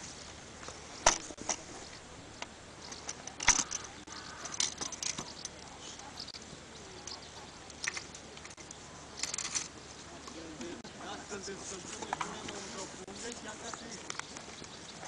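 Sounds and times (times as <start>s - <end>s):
frame parts clicking and clinking: 1.0s - 6.4s, 7.6s - 9.8s.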